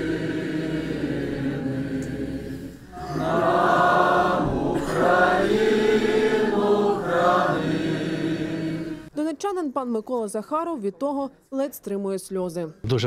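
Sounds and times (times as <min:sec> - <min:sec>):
choir chanting in held notes: 0:00.0 - 0:09.1.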